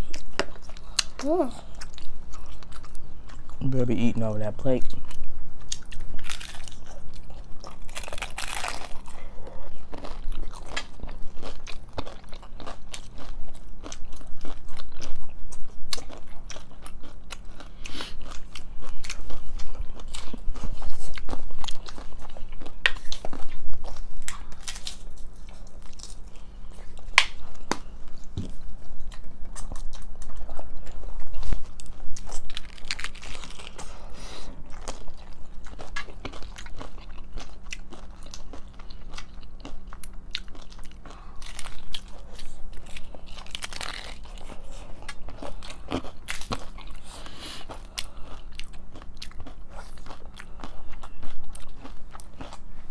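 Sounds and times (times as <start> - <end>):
crunching and chewing tacos: 0.0 - 52.9.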